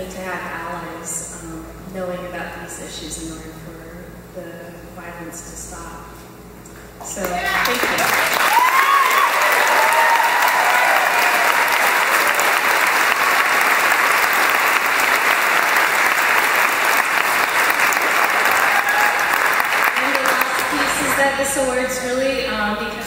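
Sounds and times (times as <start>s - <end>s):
voices cheering: 7.2s - 21.3s
audience applauding: 7.2s - 21.4s.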